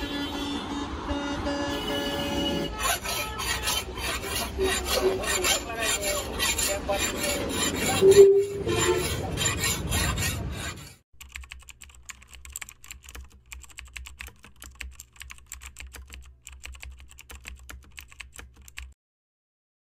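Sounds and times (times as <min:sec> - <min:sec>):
file rasping on steel blade: 0:02.2 - 0:11.0
keyboard typing clicks: 0:11.2 - 0:19.0.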